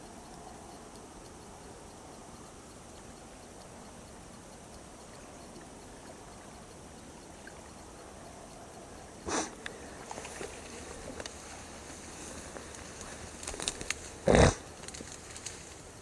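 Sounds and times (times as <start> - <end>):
faint outdoor hiss: 0.0 - 16.0
dry reeds rustling and crackling: 9.6 - 16.0.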